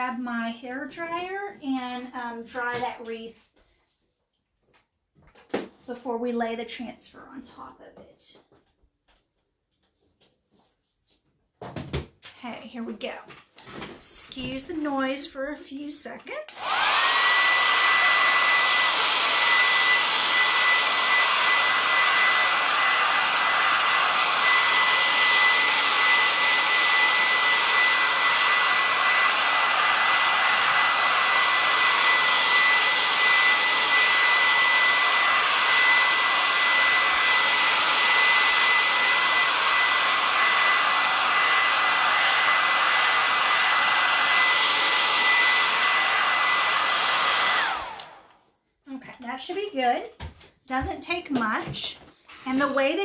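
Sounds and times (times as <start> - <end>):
hair dryer running: 14.0 - 48.4, 49.5 - 53.0.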